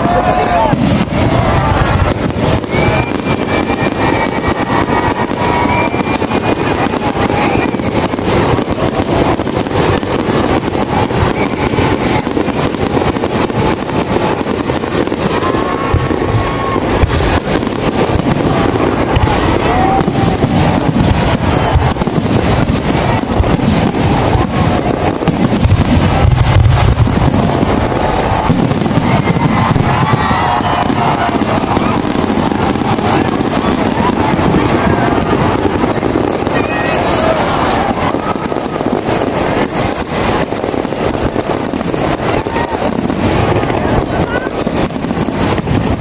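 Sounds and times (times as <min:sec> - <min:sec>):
crowd voices: 0:00.0 - 0:46.0
fireworks bangs and crackling: 0:00.0 - 0:46.0
heavy fireworks booms: 0:00.0 - 0:46.0.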